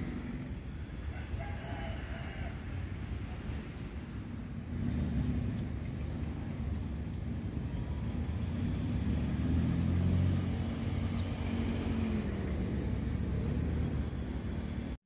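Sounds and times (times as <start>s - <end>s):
outdoor background noise: 0.0s - 15.0s
passing vehicle engine rumble: 0.0s - 15.0s.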